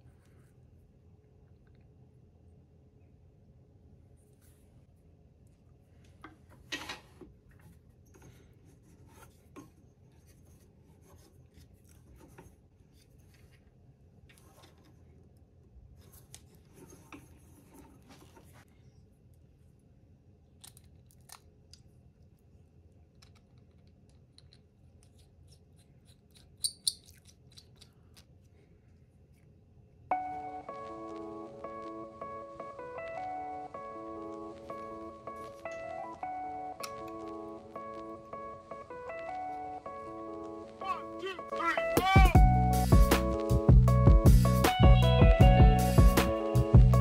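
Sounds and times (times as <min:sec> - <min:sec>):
faint steady hum: 0:27.7 - 0:41.8.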